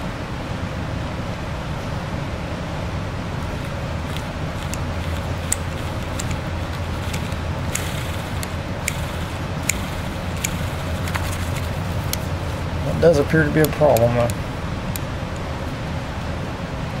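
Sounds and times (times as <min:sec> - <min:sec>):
heater humming: 0:00.0 - 0:17.0
light metallic clicks: 0:03.6 - 0:15.5.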